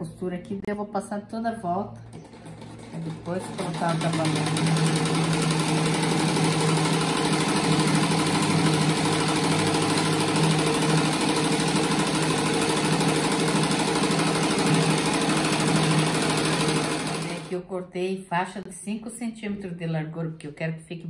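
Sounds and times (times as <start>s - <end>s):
sewing machine humming: 2.1s - 17.5s.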